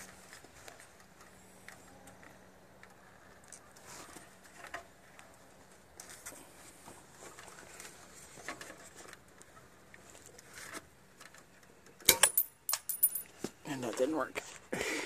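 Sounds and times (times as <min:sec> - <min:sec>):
metallic clink with ring: 0:12.1 - 0:13.3.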